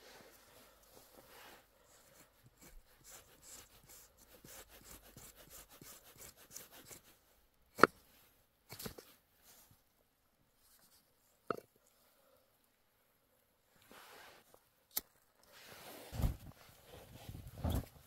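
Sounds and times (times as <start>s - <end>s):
knife scraping a metal rod: 2.1s - 7.1s.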